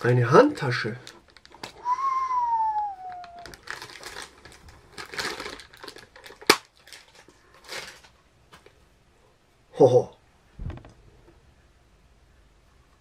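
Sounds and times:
plastic bag crinkling: 0.6 - 1.9, 3.2 - 8.2
whistle falling in pitch: 1.8 - 3.4.

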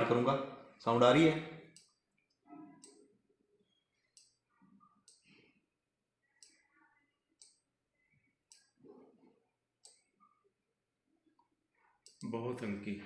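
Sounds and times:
computer mouse clicks: 1.7 - 3.1, 4.0 - 5.5, 6.2 - 9.1, 9.8 - 10.4, 11.4 - 12.4.

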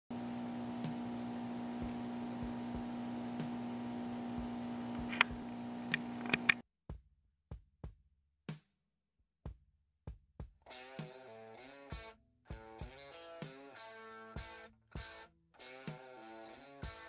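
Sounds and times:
electrical hum: 0.1 - 6.6
sharp clicks: 4.9 - 6.6.

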